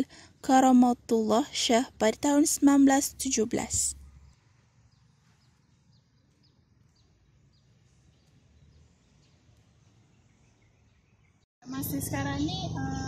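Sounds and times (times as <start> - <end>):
small birds chirping: 0.0 - 11.5.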